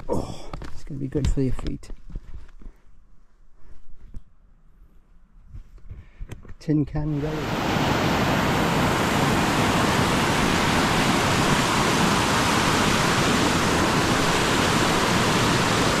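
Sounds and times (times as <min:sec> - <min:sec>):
waterfall rushing over boulders: 0:07.1 - 0:16.0.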